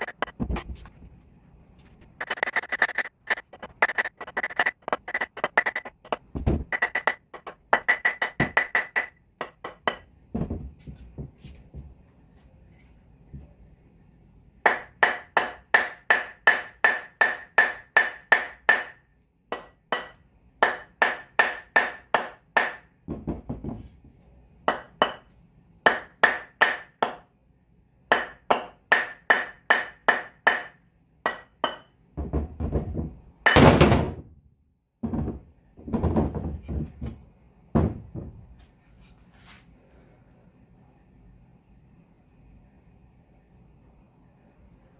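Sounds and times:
dull thuds: 3.3s - 8.8s, 9.4s - 12.1s, 23.0s - 25.2s, 32.2s - 34.4s, 35.0s - 38.6s.

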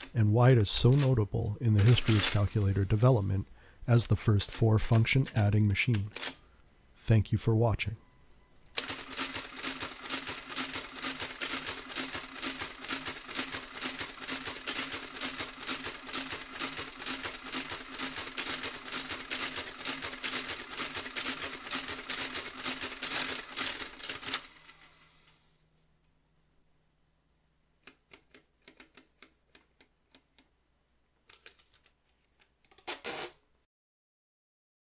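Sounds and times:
calculator mechanism clattering: 1.8s - 2.4s, 8.8s - 24.9s.

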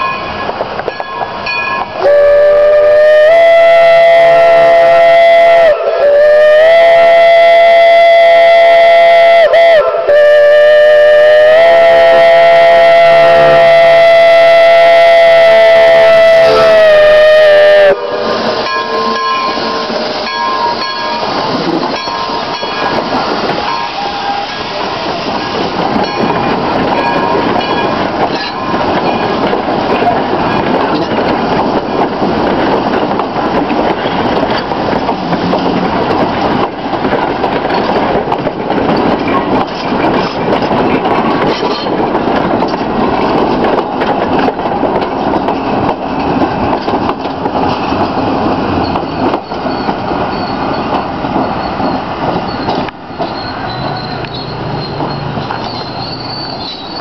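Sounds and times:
wheels clicking over rail joints: 0.0s - 2.1s, 18.4s - 57.0s
steam train rumble: 0.0s - 57.0s
high tones: 18.0s - 23.0s.

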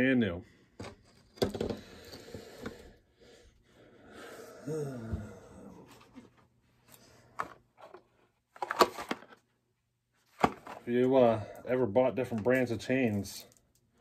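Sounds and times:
man exhaling with grunt: 4.1s - 5.9s.

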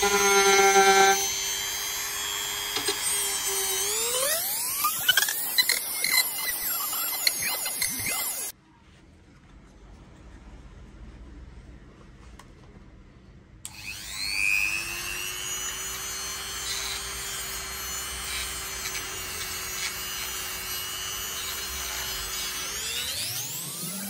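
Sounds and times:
rotary engraving tool grinding wood: 0.0s - 8.5s, 13.7s - 24.0s.

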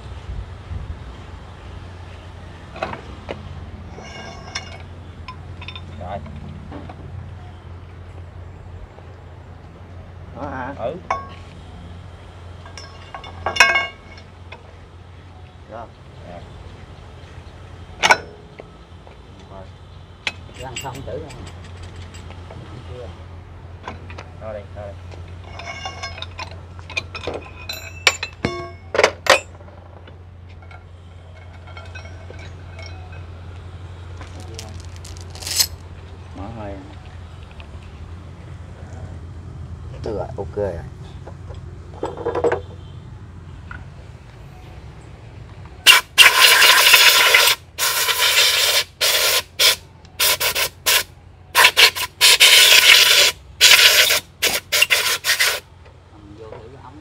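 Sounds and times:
metal tools clinking: 3.9s - 6.1s, 11.1s - 11.5s, 12.6s - 14.3s, 20.3s - 22.4s, 25.4s - 29.9s, 30.5s - 33.4s, 34.2s - 35.8s
loud bursts of hissing: 45.9s - 55.7s.

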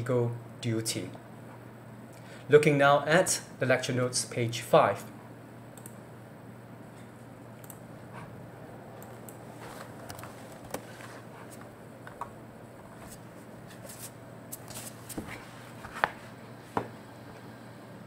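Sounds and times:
steady low hum: 0.0s - 18.0s
computer mouse clicks: 5.8s - 6.0s, 7.6s - 7.8s.

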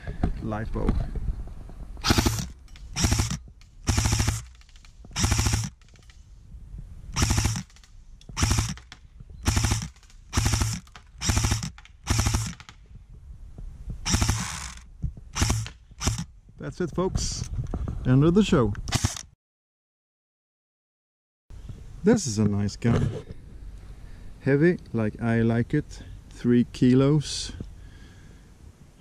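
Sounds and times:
airsoft gun firing bursts: 2.0s - 5.9s, 7.2s - 12.8s, 14.0s - 14.8s, 15.4s - 16.3s.

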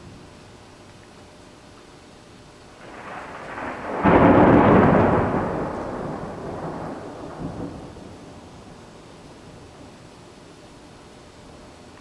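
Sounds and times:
thunder rumbling and cracking: 2.8s - 10.6s.

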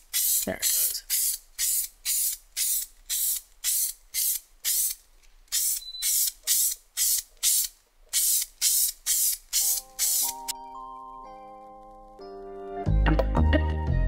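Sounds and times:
aerosol spray can hissing: 0.0s - 5.0s, 5.6s - 10.5s.

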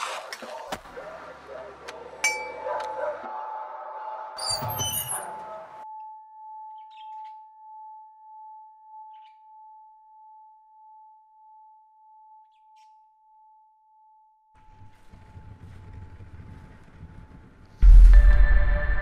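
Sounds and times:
faint bird chirps: 6.6s - 7.8s, 8.9s - 9.8s, 12.3s - 13.3s
sustained high tone: 17.8s - 19.0s.

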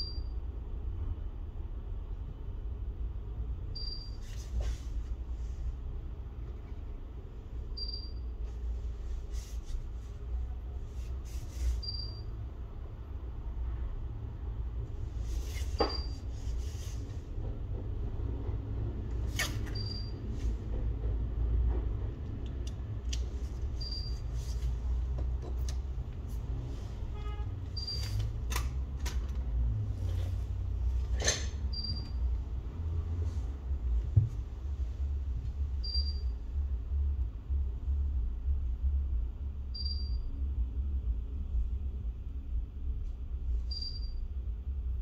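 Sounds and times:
steady low hum: 0.0s - 45.0s
short high beep: 43.7s - 44.2s.

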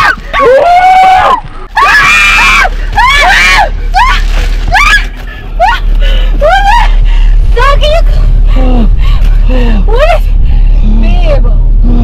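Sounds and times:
people shrieking: 0.0s - 5.8s.

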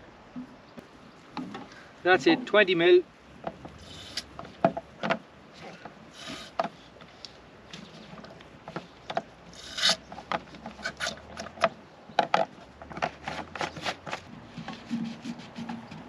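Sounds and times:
containers scraping and knocking: 7.8s - 16.0s.

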